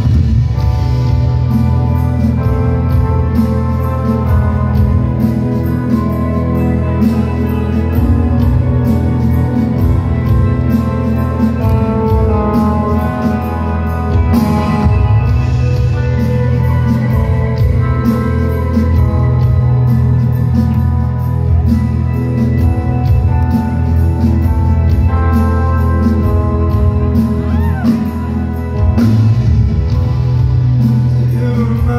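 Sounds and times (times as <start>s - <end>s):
live rock band playing: 0.0s - 31.9s.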